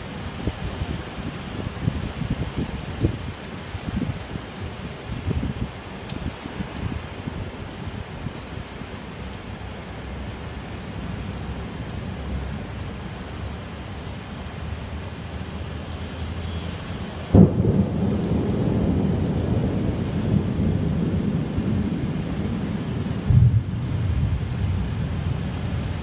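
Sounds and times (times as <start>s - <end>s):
steady rain: 0.0s - 26.0s
loud thunderclap: 17.3s - 24.4s
thunder rumbling: 17.3s - 26.0s.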